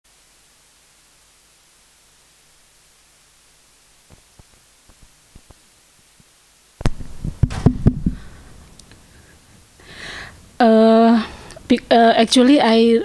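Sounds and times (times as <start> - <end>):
thumps and knocks on microphone: 6.8 - 8.3
microphone handling clicks: 6.8 - 9.0.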